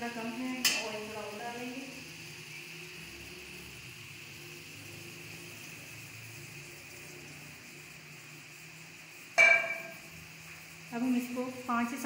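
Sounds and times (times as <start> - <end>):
onions sizzling in oil: 0.0 - 12.0
metallic clang of cookware: 9.4 - 10.0.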